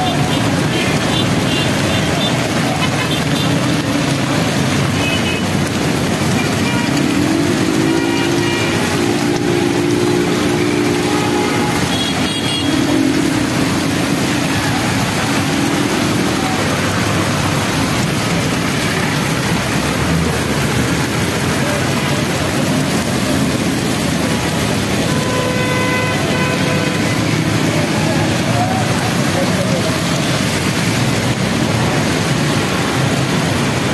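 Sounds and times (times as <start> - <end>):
heavy rain on road: 0.0 - 33.9
traffic passing through water: 0.0 - 33.9
vehicle engine revving: 5.6 - 25.1.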